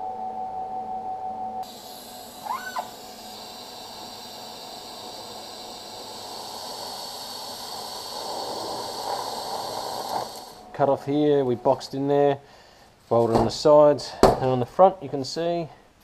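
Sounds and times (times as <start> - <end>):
faint high whine: 0.0 - 13.9
welding arc hissing: 1.6 - 10.7.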